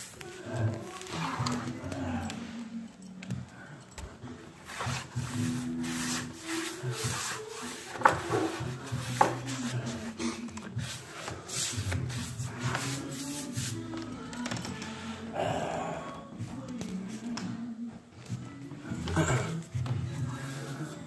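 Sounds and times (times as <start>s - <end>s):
brush rubbing across wooden floor: 4.6s - 14.0s, 20.2s - 21.0s.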